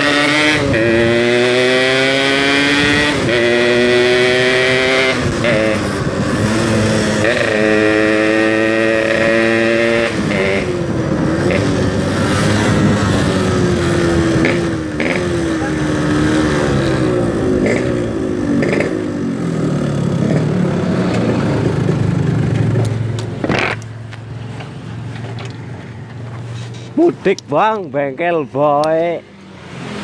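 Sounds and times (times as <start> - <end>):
wind rushing past microphone: 9.7 - 18.6.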